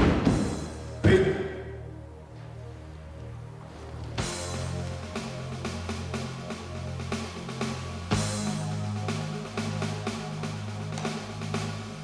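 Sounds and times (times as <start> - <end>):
loud musical hit: 0.0 - 1.8
background music with steady beat: 0.0 - 12.0.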